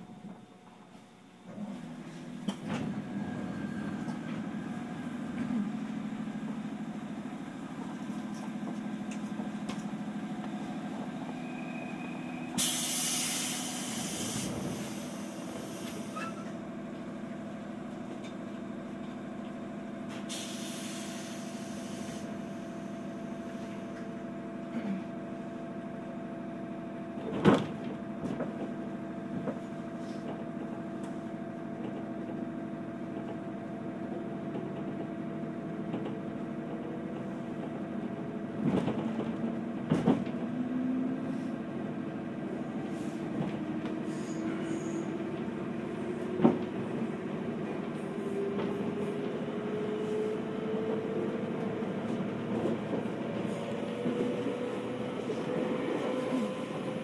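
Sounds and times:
electric train equipment hum: 0:00.0 - 0:57.0
air hiss bursts: 0:12.6 - 0:15.9.

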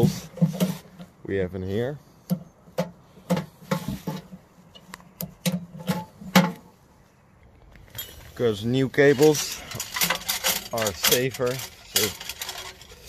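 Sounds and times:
metal parts clicking and knocking: 0:09.1 - 0:13.0.

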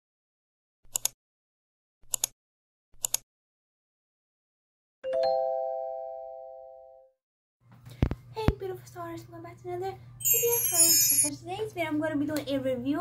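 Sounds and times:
three-note chime: 0:10.2 - 0:11.3.

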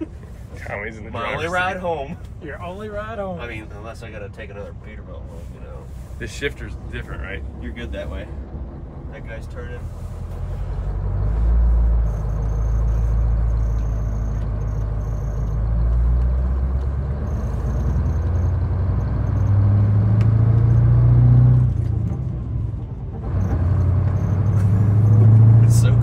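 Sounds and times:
truck diesel engine pulling: 0:00.0 - 0:26.0.

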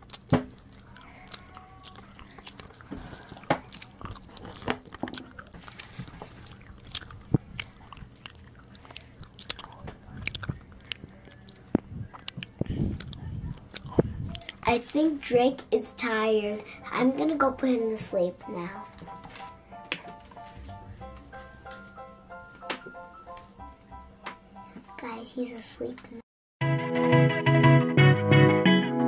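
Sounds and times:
soft clicks and crunching: 0:00.0 - 0:15.1.

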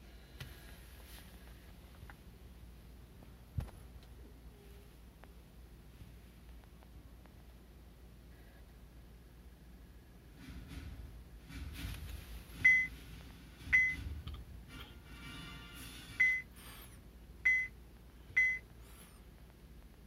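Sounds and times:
short high touch-screen beeps: 0:16.2 - 0:16.5.

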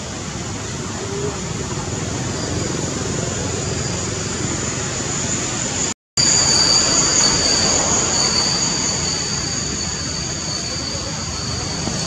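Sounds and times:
thin high whine: 0:00.6 - 0:12.0.

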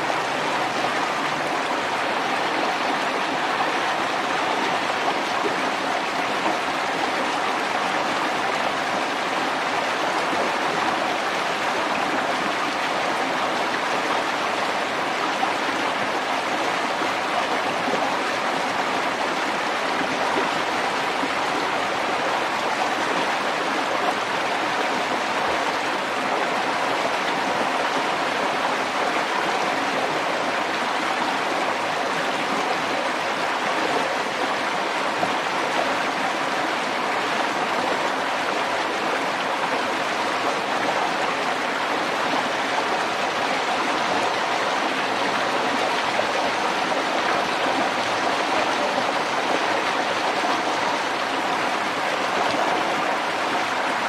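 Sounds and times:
water rushing and splashing: 0:00.0 - 0:54.0.

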